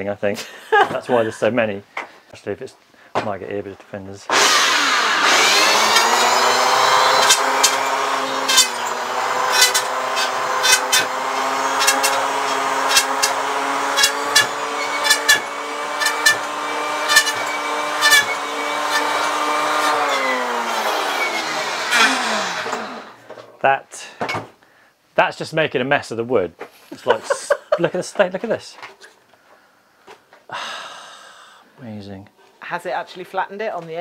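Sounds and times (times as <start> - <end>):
electric hand planer whining: 4.3 - 23.2.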